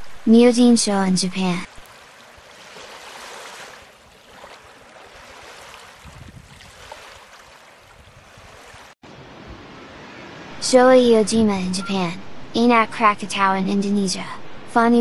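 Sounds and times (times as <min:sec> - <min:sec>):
waves washing on beach: 0:01.6 - 0:10.8.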